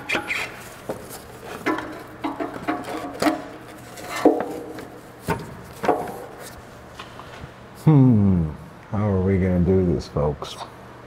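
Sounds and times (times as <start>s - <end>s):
metal knocks and clunks: 1.6s - 3.5s.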